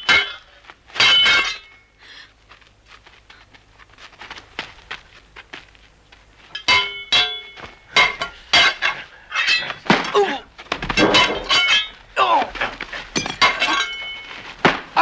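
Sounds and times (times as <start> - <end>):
metal blades clashing: 6.6 - 10.4, 11.0 - 12.0
shouts and grunts: 12.2 - 12.8.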